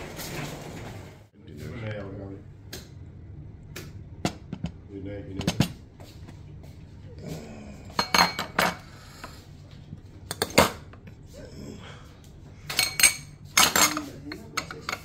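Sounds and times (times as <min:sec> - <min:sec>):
metal lids clinking on bowls: 0:08.0 - 0:08.9, 0:10.3 - 0:10.9, 0:12.7 - 0:15.0.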